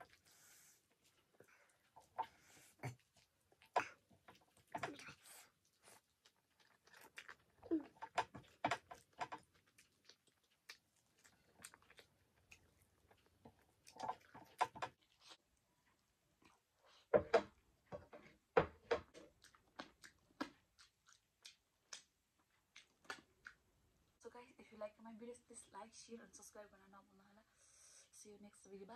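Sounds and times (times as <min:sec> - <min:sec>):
close-up chewing: 0:00.0 - 0:17.1, 0:19.1 - 0:23.7
wet mouth clicks and smacks: 0:19.4 - 0:23.6.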